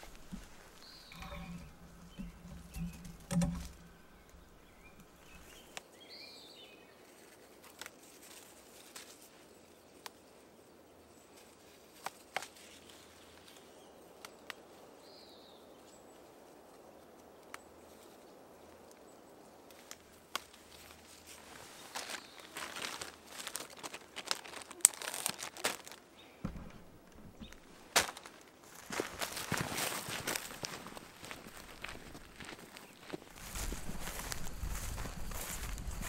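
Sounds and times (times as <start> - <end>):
camera brushing through vegetation: 0.0 - 5.8, 20.6 - 36.0
nettles rustling and snapping: 0.0 - 5.9, 7.1 - 9.4, 11.4 - 14.8, 19.7 - 36.0
bird chirping: 0.0 - 6.9, 26.1 - 27.8.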